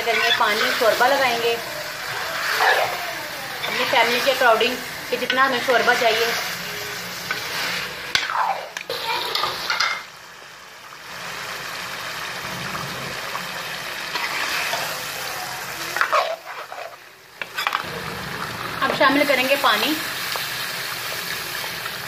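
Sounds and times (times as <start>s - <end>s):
food sizzling in a pot: 0.0s - 22.0s
metal spoon scraping a pot: 3.6s - 4.6s, 16.0s - 17.8s.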